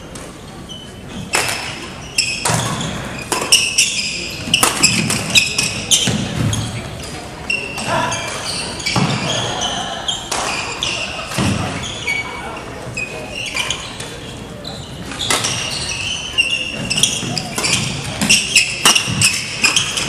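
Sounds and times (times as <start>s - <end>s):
shoes squeaking on floor: 0.0s - 20.0s
rackets striking shuttlecock: 1.2s - 7.2s, 15.1s - 16.1s, 16.7s - 20.0s.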